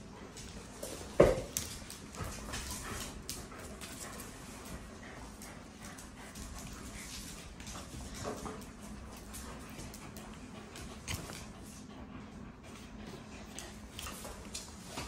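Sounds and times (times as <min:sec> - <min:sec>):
dogs scuffling: 0:00.0 - 0:12.0, 0:12.6 - 0:15.0
claws clicking on hard floor: 0:00.2 - 0:11.8.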